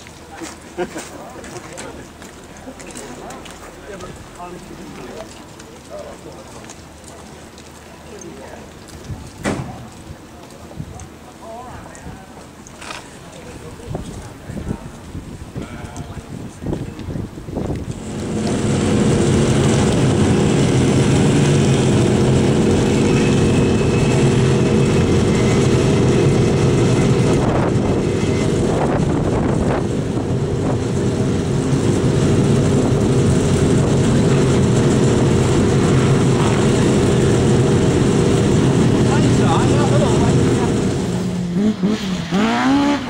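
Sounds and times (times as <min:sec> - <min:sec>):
car engine idling: 0:17.8 - 0:42.9.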